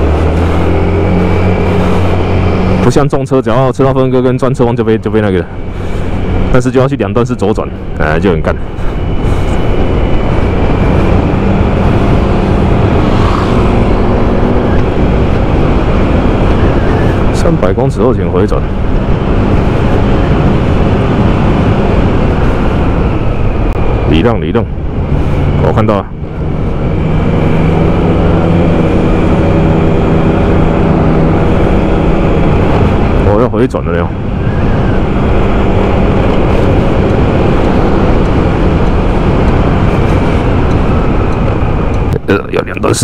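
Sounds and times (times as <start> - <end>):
wind rushing over microphone: 0.0 - 43.0
motorcycle engine running: 8.6 - 17.4.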